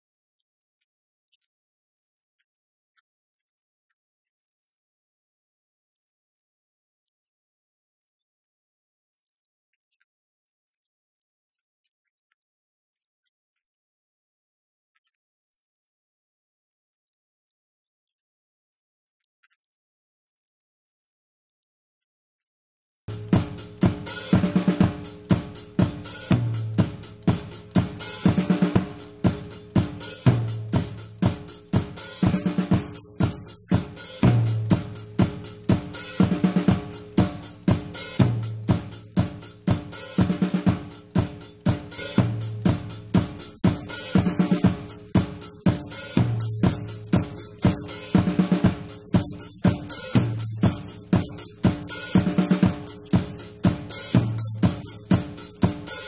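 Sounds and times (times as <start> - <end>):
drum kit playing: 23.1 - 56.0.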